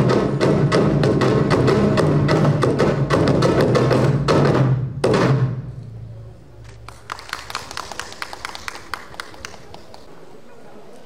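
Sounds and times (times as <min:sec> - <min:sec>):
large barrel drum beaten hard: 0:00.0 - 0:05.6.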